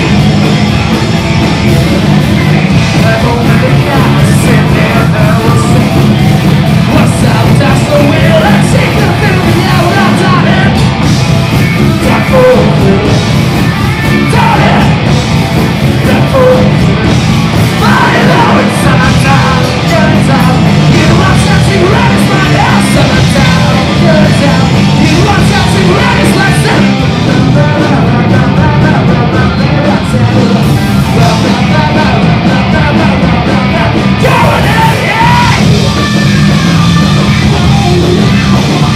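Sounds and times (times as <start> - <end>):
rock band playing live: 0.0 - 38.9
singer shouting and singing: 1.4 - 38.9.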